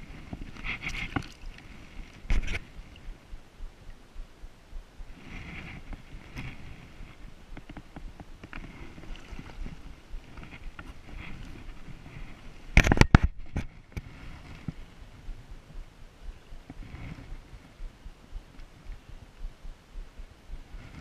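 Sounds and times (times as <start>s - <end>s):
faint water drips: 0.5s - 5.2s.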